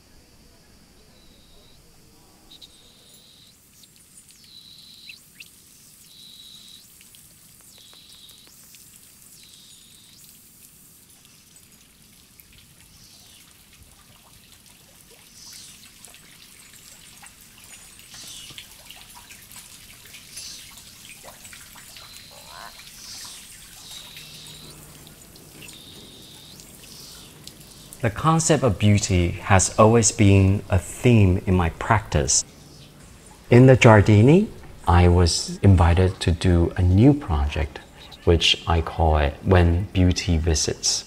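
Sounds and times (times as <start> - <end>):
high chirping call: 2.5 - 7.0, 7.6 - 8.5, 21.5 - 30.7, 37.6 - 38.4
fountain water trickling: 2.5 - 41.0
short bird calls: 21.8 - 28.1.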